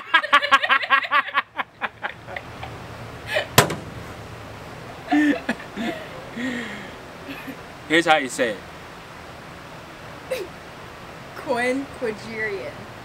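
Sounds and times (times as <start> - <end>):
man laughing heartily: 0.0 - 3.6, 5.1 - 7.6
sharp knock: 3.6 - 4.0.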